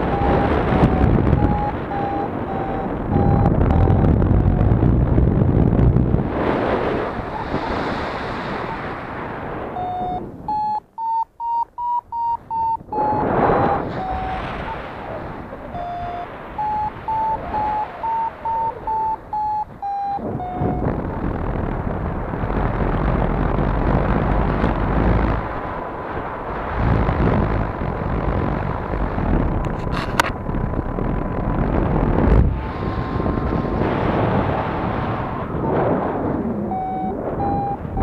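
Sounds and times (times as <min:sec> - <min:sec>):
short electronic beeps rising in pitch: 0:00.0 - 0:04.7, 0:07.2 - 0:08.9, 0:09.8 - 0:14.8, 0:15.7 - 0:20.9, 0:36.7 - 0:38.0
wind rushing over microphone: 0:00.0 - 0:38.0.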